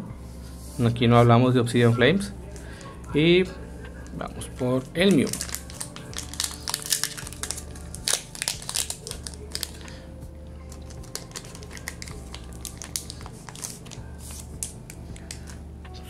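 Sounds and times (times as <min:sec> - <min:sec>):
foil wrapper crinkling: 0:04.9 - 0:10.0, 0:10.7 - 0:15.6.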